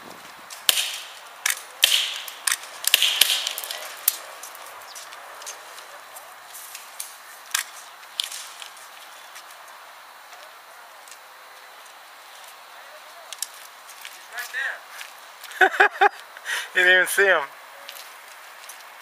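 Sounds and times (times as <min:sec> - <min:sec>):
airsoft gun shots: 0:00.6 - 0:04.2.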